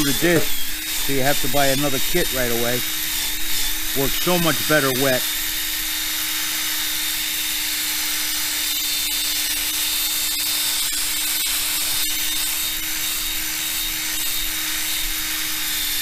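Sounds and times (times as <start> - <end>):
drill motor hum: 0.0 - 16.0.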